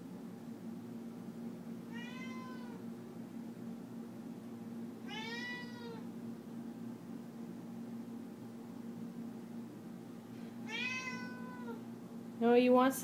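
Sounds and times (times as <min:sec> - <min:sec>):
cat meowing: 0:01.9 - 0:02.8, 0:05.1 - 0:06.0, 0:10.6 - 0:11.8.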